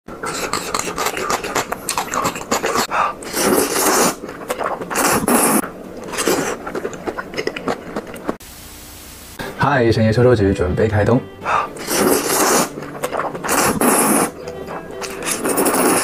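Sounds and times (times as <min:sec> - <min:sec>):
noisy noodle slurp: 0:00.2 - 0:08.4, 0:11.6 - 0:16.0
wet chewing and lip-smacking: 0:00.2 - 0:08.4, 0:11.6 - 0:16.0.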